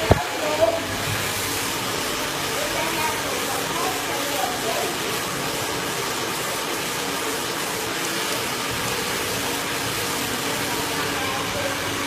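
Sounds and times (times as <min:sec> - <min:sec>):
hair dryer running: 0:00.0 - 0:12.0.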